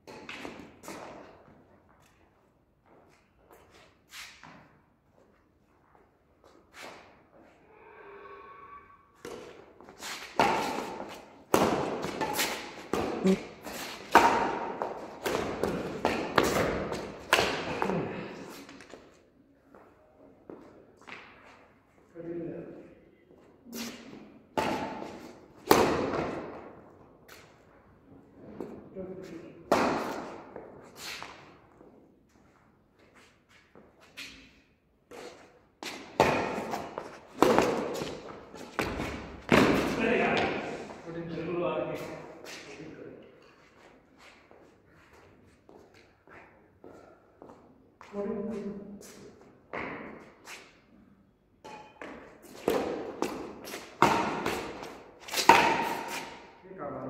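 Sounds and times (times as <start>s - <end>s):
rackets hitting shuttlecock: 0.0s - 1.2s, 9.2s - 19.0s, 23.9s - 26.8s, 29.7s - 31.5s, 35.8s - 40.8s, 51.6s - 56.6s.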